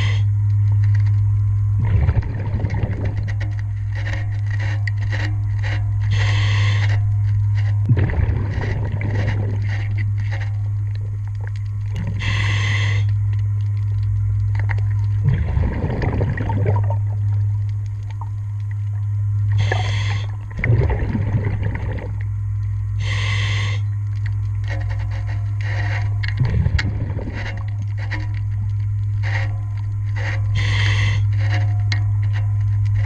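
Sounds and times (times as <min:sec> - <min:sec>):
exhaled bubbles rumbling: 0:00.0 - 0:33.0
steady low hum: 0:00.0 - 0:33.0
regulator hissing inhales: 0:06.1 - 0:06.9, 0:12.2 - 0:13.1, 0:19.6 - 0:20.4, 0:23.0 - 0:23.9, 0:30.6 - 0:31.2.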